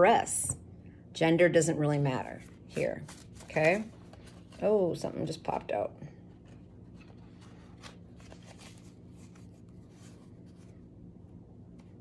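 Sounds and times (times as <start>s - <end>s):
low steady hum: 0.0s - 12.0s
cards rustling and clicking: 2.7s - 4.7s, 6.4s - 10.8s.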